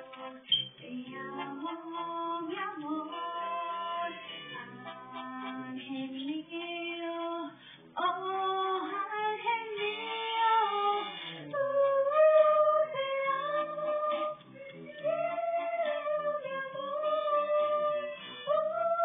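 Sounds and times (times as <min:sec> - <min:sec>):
young woman singing: 0:00.8 - 0:19.0.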